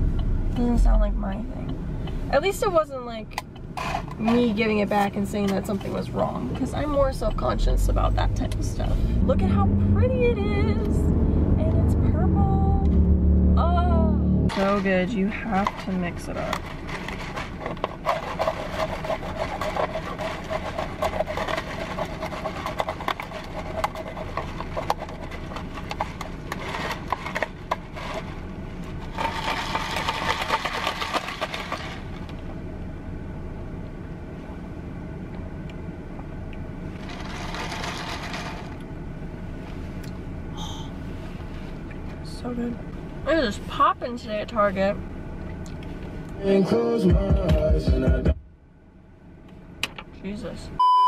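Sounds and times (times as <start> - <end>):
ice cubes rattling in cup: 14.5 - 28.3, 29.1 - 32.2, 37.1 - 38.8
straw squeaking in plastic cup: 16.4 - 27.9.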